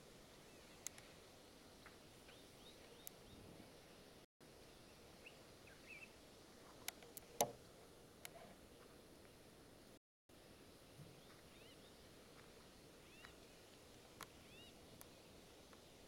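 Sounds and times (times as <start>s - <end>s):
steady low hiss: 0.0s - 16.0s
faint bird chirps: 4.6s - 6.2s, 11.0s - 12.2s, 13.0s - 13.6s, 14.3s - 16.0s.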